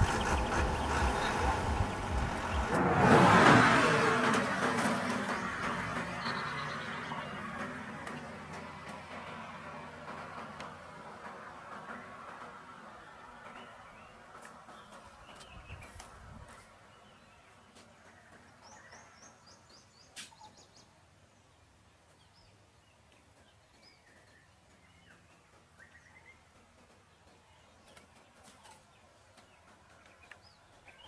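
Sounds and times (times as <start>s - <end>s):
birds chirping and whistling: 0.0s - 2.8s, 5.3s - 8.3s.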